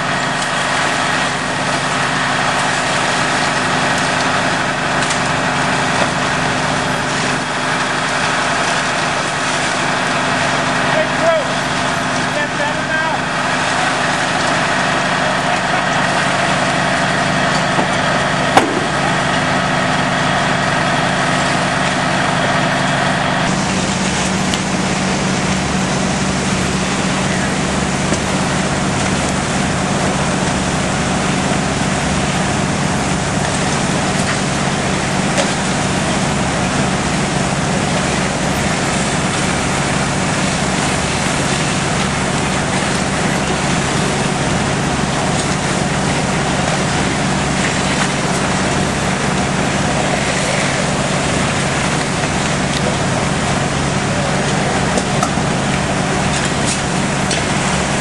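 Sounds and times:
fire engines running: 0:00.0 - 0:58.0
water rushing: 0:00.0 - 0:58.0
sharp knock: 0:18.6 - 0:19.1.

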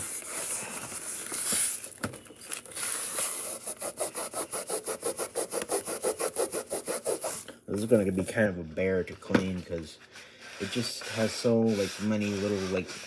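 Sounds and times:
wipe rubbing plastic case: 0:03.5 - 0:07.4.

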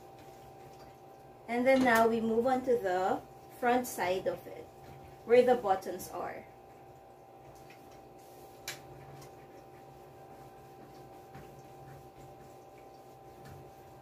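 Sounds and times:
faint hum: 0:00.0 - 0:14.0
hands smoothing fabric: 0:08.2 - 0:14.0.

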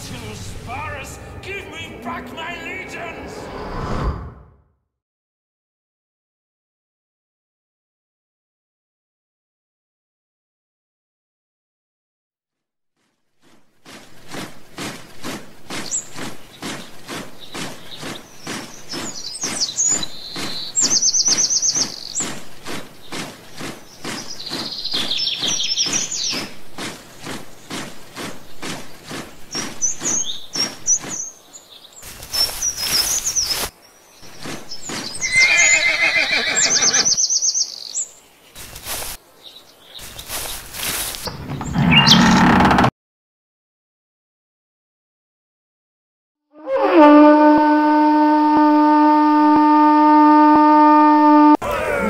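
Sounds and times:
birds chirping: 0:00.0 - 0:03.6, 0:13.4 - 0:42.9
marching footsteps: 0:13.0 - 0:37.2, 0:38.6 - 0:39.3, 0:40.0 - 0:42.9
horses whinnying: 0:35.2 - 0:37.2, 0:41.6 - 0:42.9, 0:51.6 - 0:52.0.

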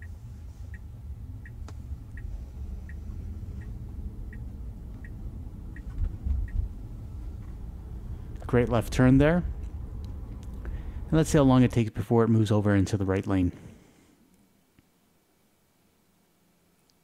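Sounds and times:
turn signal ticking: 0:00.0 - 0:07.7
low road rumble in cabin: 0:00.0 - 0:12.0.

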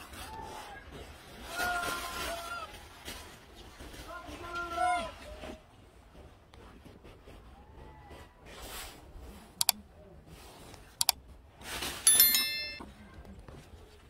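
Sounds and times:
bright bell chime: 0:12.1 - 0:12.9.

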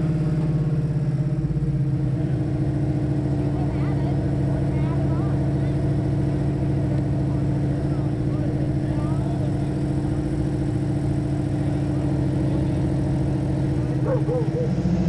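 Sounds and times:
engine idling: 0:00.0 - 0:15.0
faint voices: 0:13.7 - 0:15.0.

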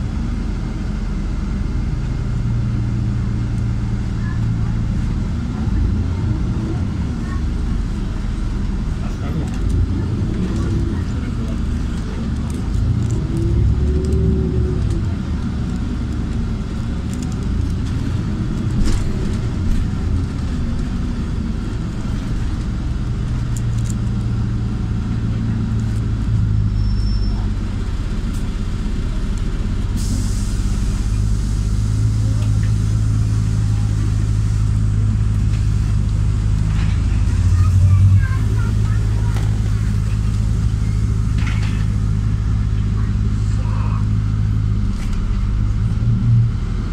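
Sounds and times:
bus engine drone: 0:00.0 - 0:46.9
road noise: 0:00.0 - 0:46.9.

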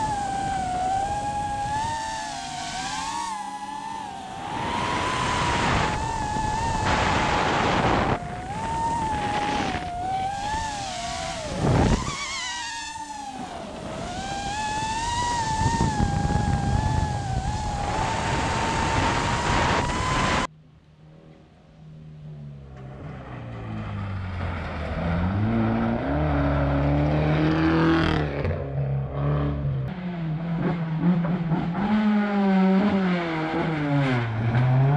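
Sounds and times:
drone propeller whine: 0:00.0 - 0:23.9
car engine: 0:00.0 - 0:34.9
wind rushing: 0:04.4 - 0:20.5.

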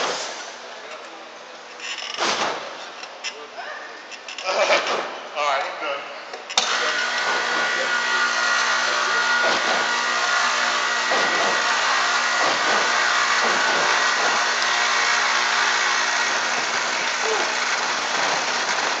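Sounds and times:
machine hum: 0:06.6 - 0:19.0
whining tones: 0:06.6 - 0:19.0.

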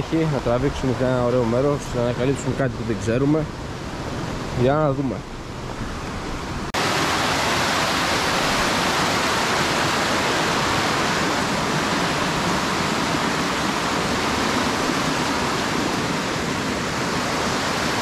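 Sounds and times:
stream rushing over rocks: 0:05.9 - 0:18.0.

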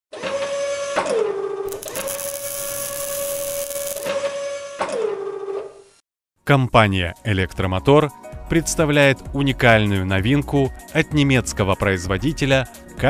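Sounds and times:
crackle of sparks: 0:01.7 - 0:04.2
robot arm servo whine: 0:01.7 - 0:04.8.

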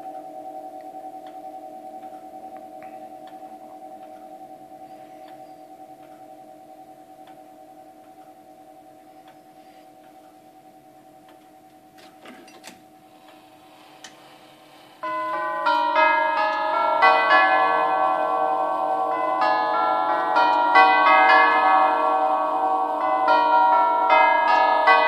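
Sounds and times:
clock tubular chimes ringing: 0:00.0 - 0:13.8, 0:14.9 - 0:25.0
faint clock clicks: 0:00.1 - 0:04.4, 0:05.0 - 0:13.4.

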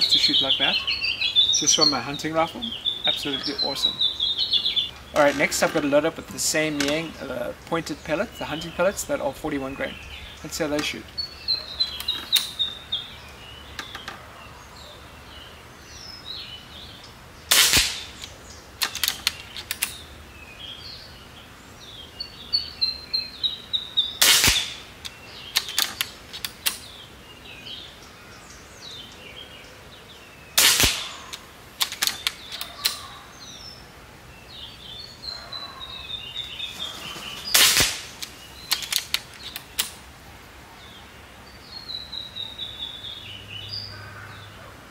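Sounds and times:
air rifle shots: 0:17.5 - 0:20.0, 0:24.2 - 0:25.0, 0:30.6 - 0:33.0, 0:37.1 - 0:39.2.

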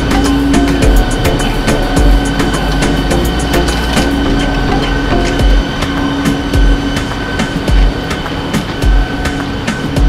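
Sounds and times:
machine hum with high whine: 0:00.0 - 0:10.0
footsteps thumping: 0:06.5 - 0:06.9, 0:07.6 - 0:08.1.

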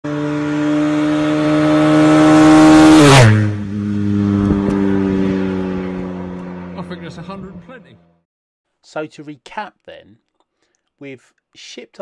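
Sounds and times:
motorcycle passing by: 0:00.0 - 0:08.2.

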